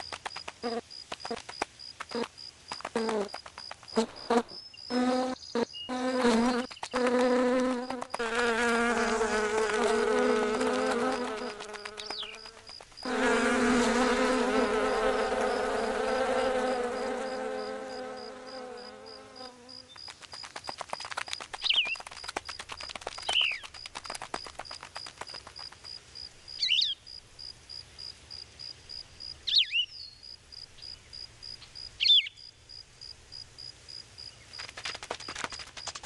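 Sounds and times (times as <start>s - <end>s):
flies buzzing: 0.0s - 23.4s.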